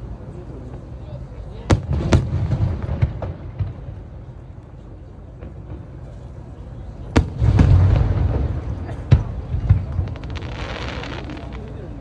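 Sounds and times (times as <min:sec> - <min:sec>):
firework bangs: 0:01.7 - 0:04.0, 0:07.1 - 0:11.8
firework crackle: 0:07.2 - 0:12.0.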